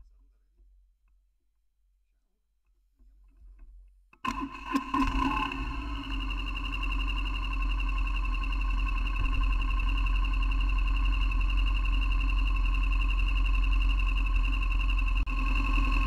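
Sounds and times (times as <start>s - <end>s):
motorcycle engine running: 4.3s - 16.0s
high whine: 4.7s - 16.0s.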